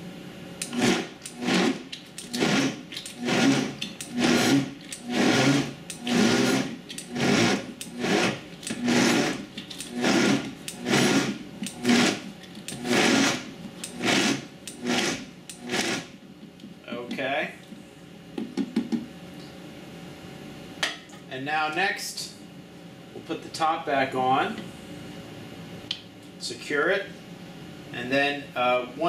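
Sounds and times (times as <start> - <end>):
blender pulsing: 0.6 - 16.2.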